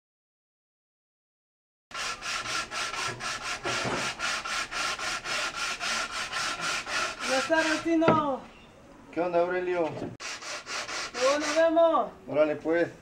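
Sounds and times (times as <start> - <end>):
hand tool rubbing on wood: 1.9 - 8.1, 9.8 - 11.8.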